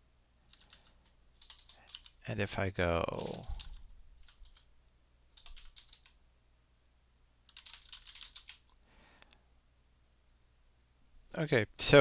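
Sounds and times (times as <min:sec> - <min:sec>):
faint keyboard typing: 0:00.4 - 0:02.2, 0:03.0 - 0:06.2, 0:07.4 - 0:09.4.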